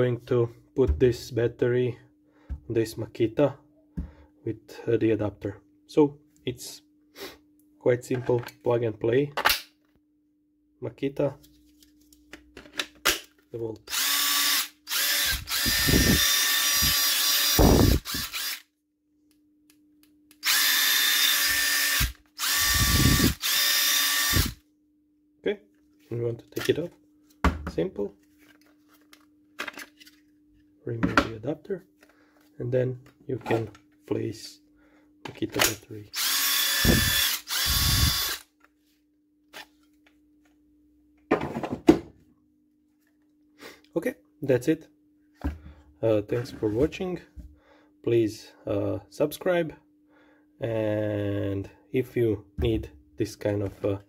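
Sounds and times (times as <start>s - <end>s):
impact driver motor whine: 13.9s - 18.6s, 20.4s - 24.6s, 36.2s - 38.4s.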